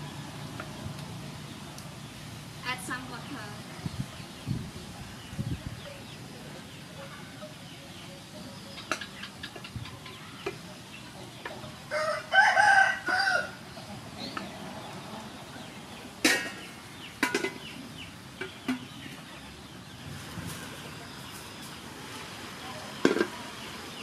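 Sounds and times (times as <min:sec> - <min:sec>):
rooster crowing: 0:11.9 - 0:13.6.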